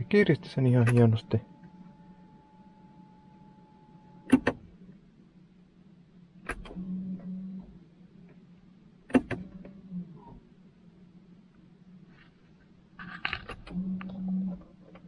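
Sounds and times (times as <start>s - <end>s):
brake actuator motors running: 0.0s - 4.8s, 9.1s - 10.5s.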